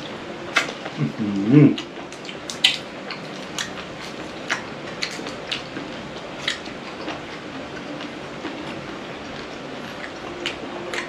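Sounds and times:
crunchy chewing: 0.0 - 11.0.

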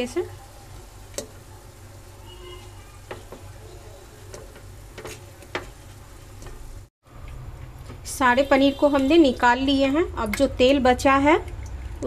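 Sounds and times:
oil sizzling: 0.0 - 12.0
spatula tapping pan and plate: 3.0 - 3.5.

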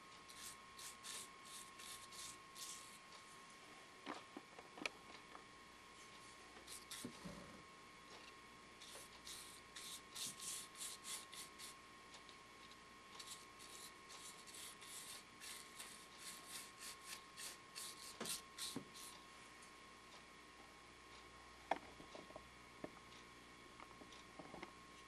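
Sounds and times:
bristle brush swishing on wood: 0.3 - 3.0.

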